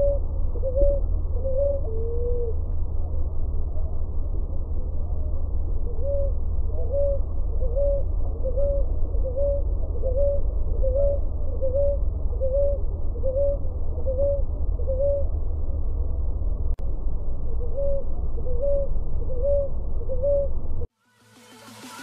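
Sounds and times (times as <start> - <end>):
dove cooing: 0.0 - 2.6, 4.6 - 15.4, 17.5 - 20.6
steady low rumble: 0.0 - 20.9.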